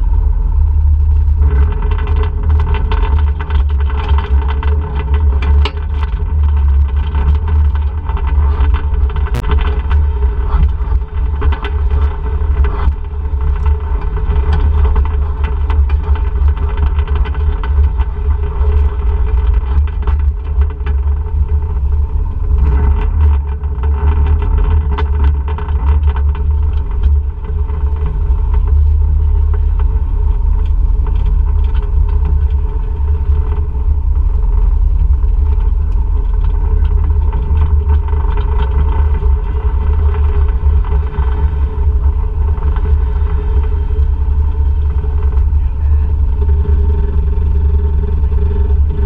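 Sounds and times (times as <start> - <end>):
low rumble: 0.0 - 49.0
quad bike engine running: 0.0 - 49.0
rattles and knocks: 1.0 - 21.6.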